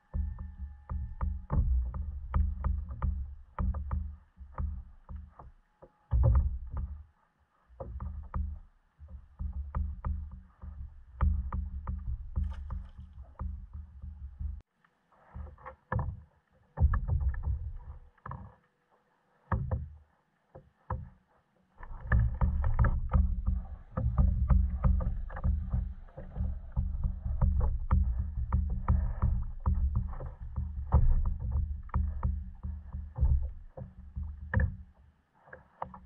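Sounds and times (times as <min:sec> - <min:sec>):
wind rumbling on microphone: 0:07.8 - 0:14.6, 0:21.8 - 0:34.9
small waves lapping against hull: 0:21.8 - 0:36.0.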